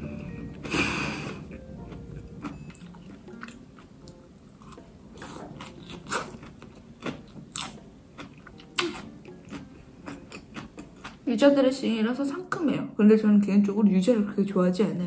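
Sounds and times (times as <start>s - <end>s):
person chewing crisp salad: 0.4s - 11.2s.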